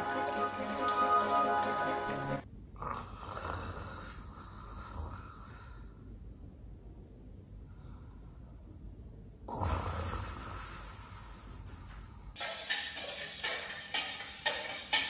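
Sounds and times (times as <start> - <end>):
music with a steady beat: 0.0 - 2.4, 12.4 - 15.0
person snoring and breathing: 2.8 - 6.0, 9.5 - 12.0
kitchen dishes clinking: 12.4 - 15.0.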